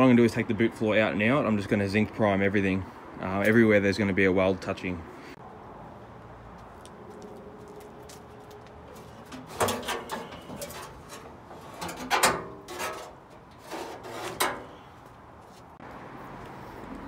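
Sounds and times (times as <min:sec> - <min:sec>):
metal panel clanking and scraping: 0:08.9 - 0:14.8.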